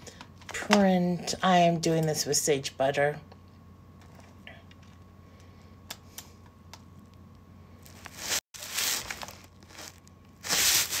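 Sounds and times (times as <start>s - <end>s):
rustling crinkling noise: 6.9s - 11.0s.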